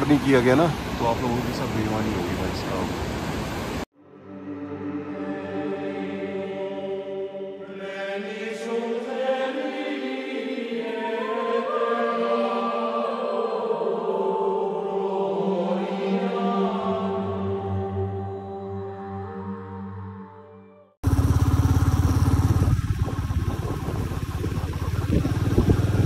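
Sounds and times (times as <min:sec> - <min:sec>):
steady drone: 0:00.0 - 0:25.9
voices chanting long notes: 0:04.0 - 0:21.0.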